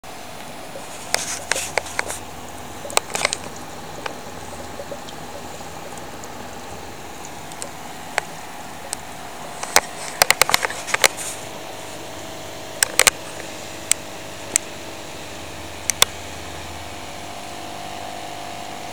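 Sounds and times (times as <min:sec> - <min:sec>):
air pump humming: 0:00.0 - 0:18.9
air bubbling through water: 0:00.5 - 0:10.8
sharp clicks: 0:12.8 - 0:13.2.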